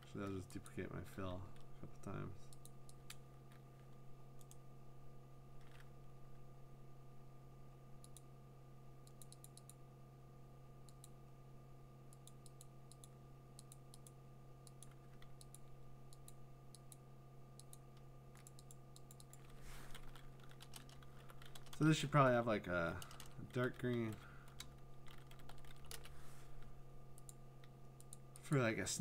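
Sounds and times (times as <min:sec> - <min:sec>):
steady low hum: 0:00.0 - 0:29.0
keyboard and mouse clicks: 0:12.1 - 0:17.0, 0:17.6 - 0:21.8.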